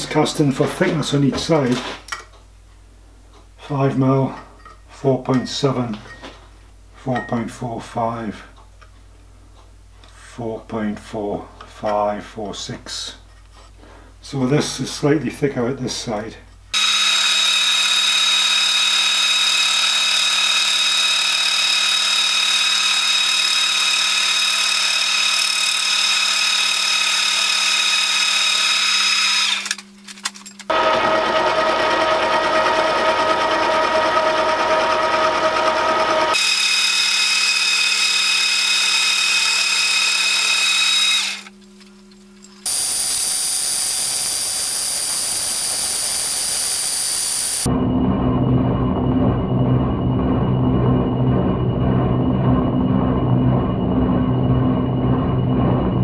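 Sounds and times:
milling machine whine: 16.8s - 29.8s, 30.7s - 41.6s, 42.4s - 56.0s.

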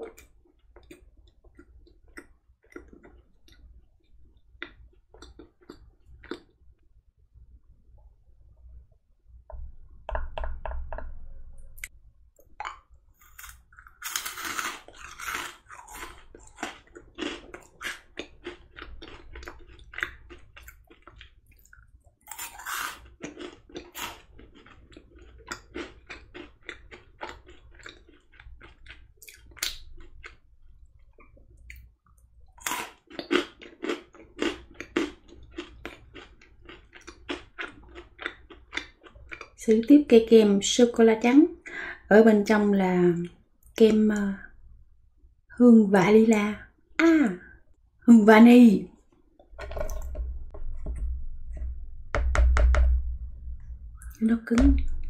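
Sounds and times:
crunching and chewing chocolates: 0.0s - 6.8s, 12.4s - 39.6s.

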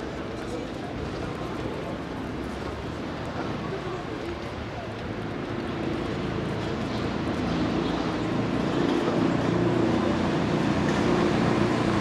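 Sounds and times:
street traffic engine hum: 0.0s - 12.0s.

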